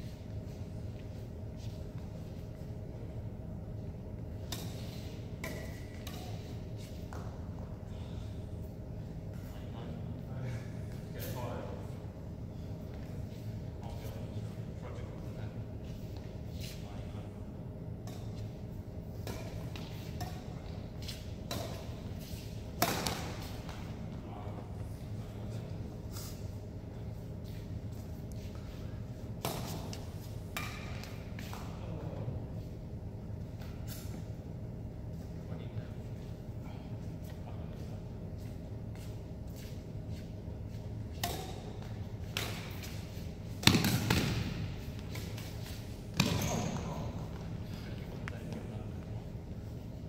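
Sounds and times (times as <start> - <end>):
rackets hitting shuttlecock: 4.4 - 7.3, 19.2 - 24.0, 29.4 - 31.7, 41.2 - 47.5.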